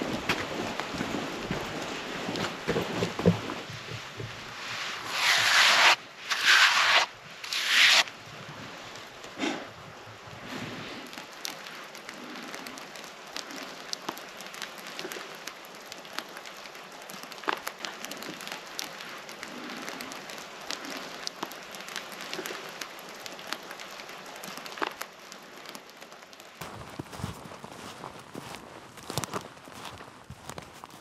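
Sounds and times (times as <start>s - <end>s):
drops pattering on forest floor: 11.1s - 31.0s
footsteps on forest floor: 26.6s - 31.0s.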